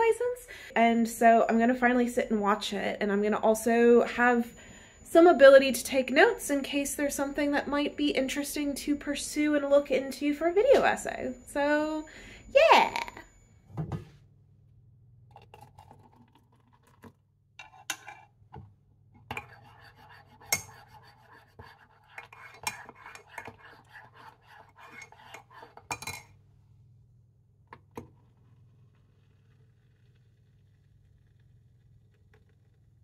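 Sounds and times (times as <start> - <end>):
low steady hum: 0.0 - 33.0
spoon stirring in ceramic mug: 17.6 - 18.3, 19.3 - 26.3.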